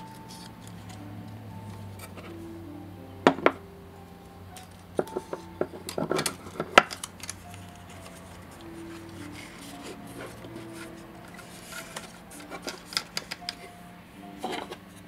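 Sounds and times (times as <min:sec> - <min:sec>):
film cassette knocks and rattles: 0:05.0 - 0:07.5.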